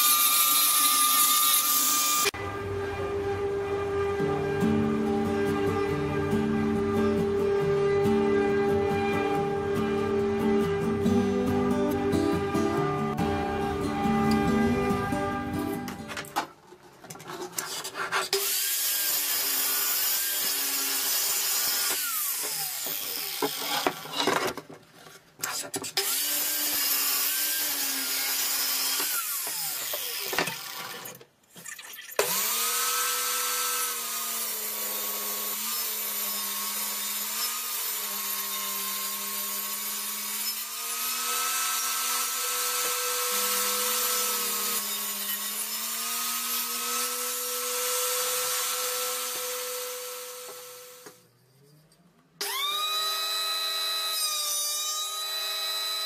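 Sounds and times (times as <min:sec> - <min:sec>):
power saw cutting timber: 0:00.0 - 0:02.4, 0:18.2 - 0:24.3, 0:26.0 - 0:31.2, 0:32.2 - 0:51.2, 0:52.4 - 0:56.0
table saw ripping boards: 0:17.6 - 0:24.7.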